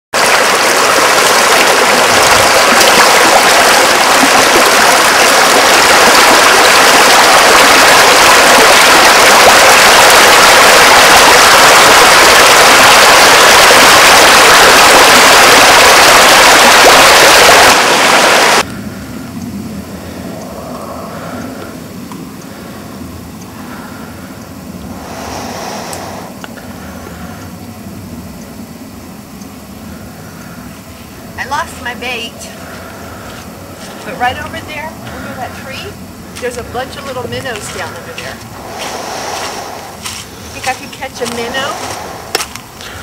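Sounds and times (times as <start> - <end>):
rushing stream water: 0.1 - 18.7, 24.9 - 26.4, 36.4 - 43.0.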